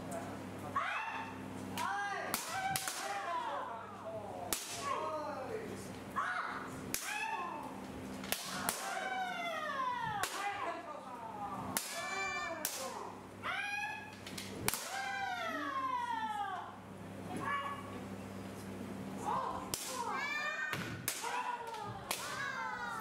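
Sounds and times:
people shouting: 0.8 - 3.9, 8.4 - 10.8, 11.8 - 14.1, 14.7 - 16.8, 19.2 - 23.0.

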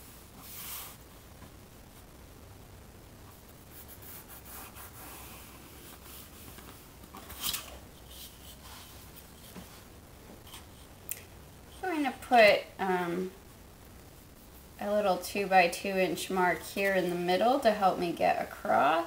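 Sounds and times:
pencil scratching on paper: 3.7 - 6.4
ruler rubbing across paper: 3.7 - 6.6.

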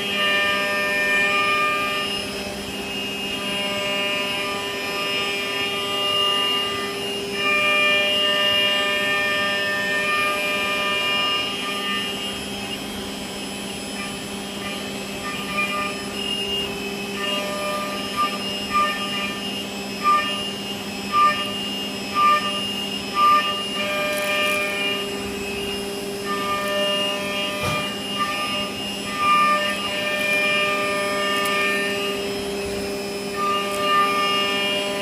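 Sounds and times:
machine whine and hum: 0.0 - 35.0
high metal cutting tone: 7.4 - 35.0.

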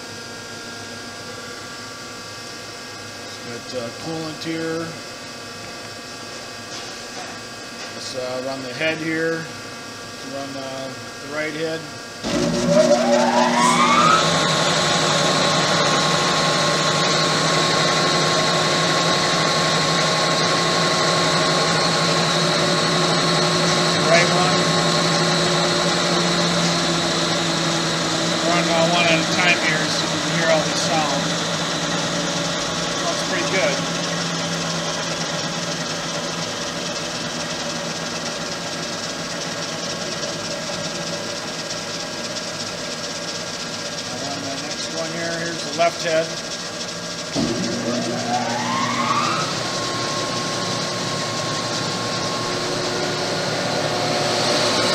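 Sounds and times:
grinder motor humming: 10.3 - 54.9
low hum: 12.2 - 16.4, 47.4 - 54.3.

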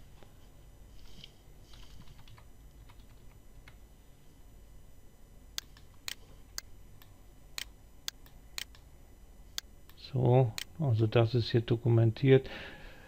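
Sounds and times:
computer mouse clicking: 5.6 - 8.8.

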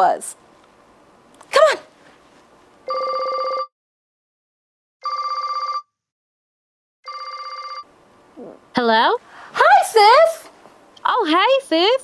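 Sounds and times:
telephone trilling rings: 2.9 - 3.7, 5.0 - 5.9, 7.0 - 7.9.

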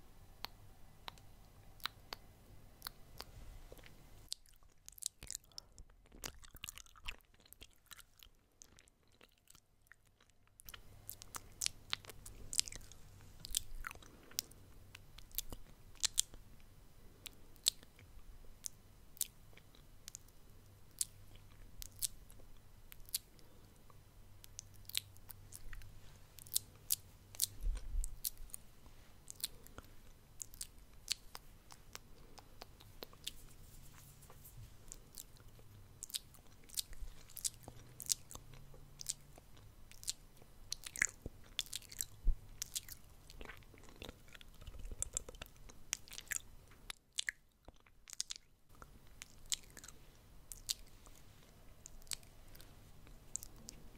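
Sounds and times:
wet mouth clicks and smacks: 0.4 - 2.2, 50.5 - 51.2.

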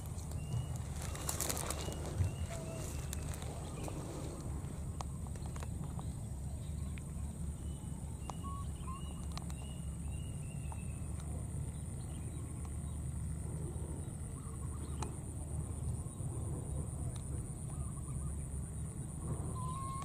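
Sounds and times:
wind rumbling on microphone: 0.0 - 8.3.

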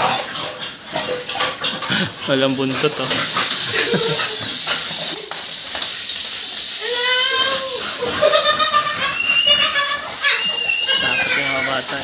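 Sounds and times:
water hissing from hose nozzle: 0.0 - 12.0
dog whining: 9.0 - 12.0.

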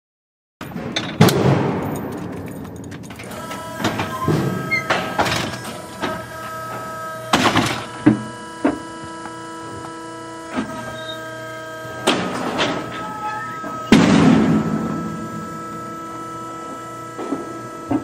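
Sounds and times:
metal chute gates clanking: 0.6 - 8.8, 10.3 - 18.0
steady held tones: 7.9 - 18.0.

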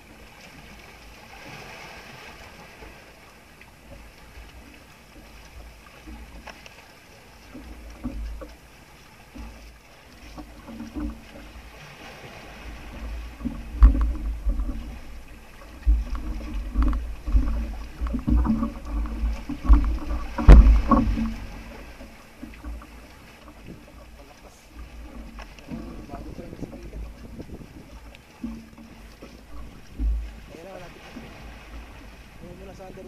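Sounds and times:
water lapping against hull: 0.0 - 33.0
boat knocking: 2.3 - 33.0
wind gusts: 10.2 - 33.0.

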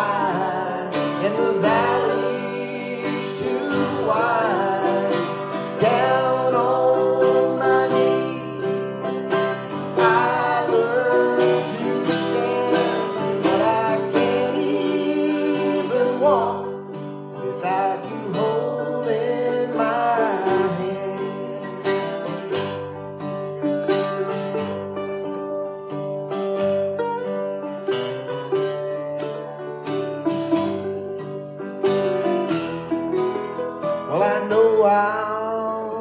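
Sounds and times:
acoustic guitar strumming: 0.0 - 36.0
mandolin picking: 0.0 - 36.0.

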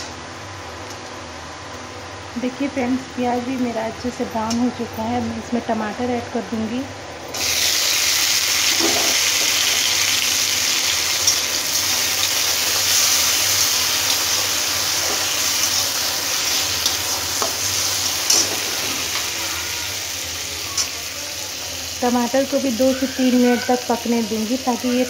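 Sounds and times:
tomatoes sizzling in hot oil: 7.3 - 25.0.

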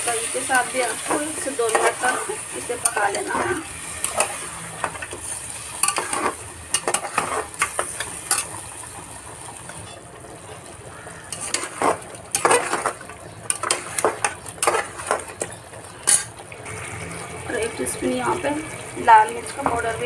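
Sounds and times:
curry sizzling: 0.0 - 20.0
metal spatula scraping a pot: 0.2 - 8.6, 9.6 - 10.1, 11.3 - 16.4.

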